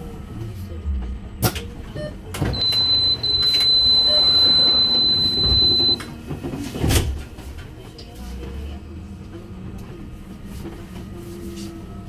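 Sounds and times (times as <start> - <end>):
door warning beep: 2.0 - 6.1.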